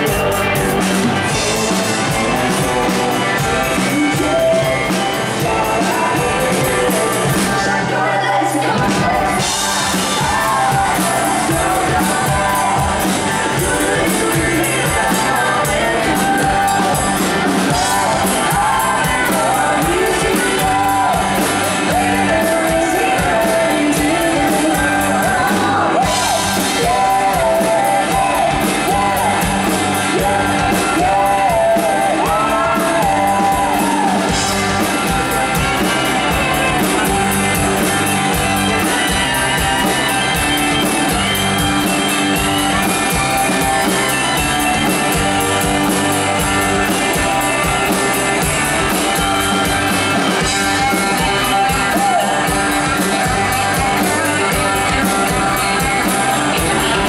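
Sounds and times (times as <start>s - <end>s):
male and female vocals singing: 0.0s - 36.0s, 46.8s - 57.0s
live band playing: 0.0s - 57.0s.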